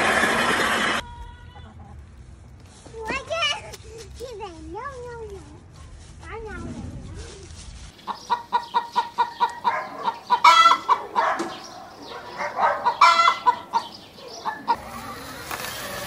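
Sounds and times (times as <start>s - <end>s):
hen clucking and cackling: 7.9s - 15.2s.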